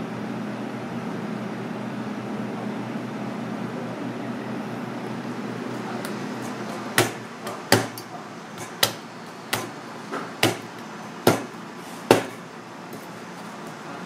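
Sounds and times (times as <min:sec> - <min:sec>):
steady low hum: 0:00.0 - 0:14.0
knife chopping onto cutting board: 0:06.0 - 0:12.4.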